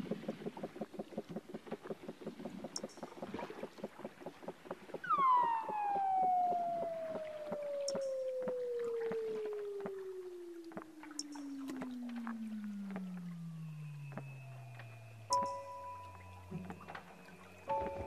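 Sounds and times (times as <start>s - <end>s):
seal pulse train underwater: 0.0s - 18.0s
seal whistle gliding down: 5.0s - 16.5s.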